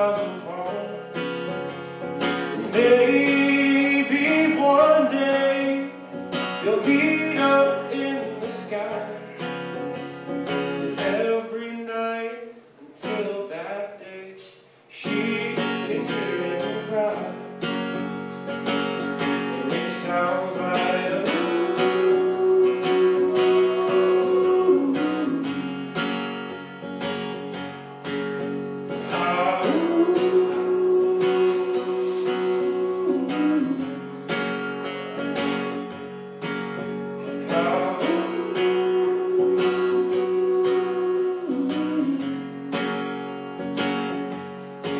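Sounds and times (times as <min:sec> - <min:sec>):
person singing: 0:00.0 - 0:01.1, 0:02.4 - 0:09.4, 0:10.8 - 0:17.5, 0:19.2 - 0:26.2, 0:29.0 - 0:34.4, 0:37.2 - 0:43.0
acoustic guitar strumming: 0:00.0 - 0:44.9.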